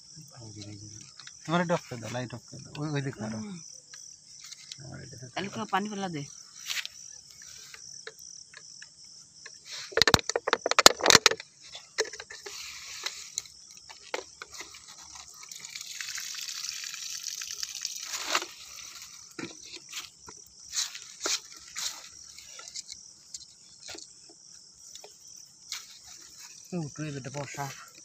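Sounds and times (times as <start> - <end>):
water pouring: 13.2 - 20.2
water splashing: 14.9 - 19.4.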